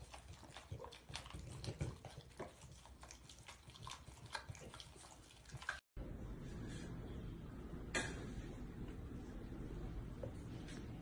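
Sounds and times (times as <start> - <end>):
dog licking: 0.0 - 5.8.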